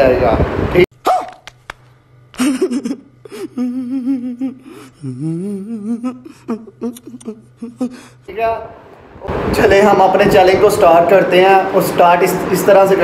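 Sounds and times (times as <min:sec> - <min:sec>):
man whimpering hums: 0:02.4 - 0:08.3.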